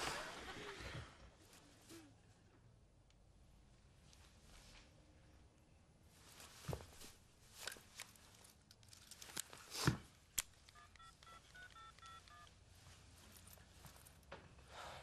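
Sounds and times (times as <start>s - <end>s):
rustles and clicks of handling: 6.2s - 14.7s
phone keypad beeps: 10.7s - 12.5s.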